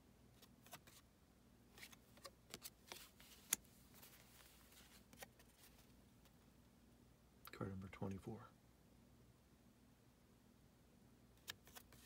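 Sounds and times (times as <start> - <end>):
trading cards clicking and rustling: 11.4 - 12.0.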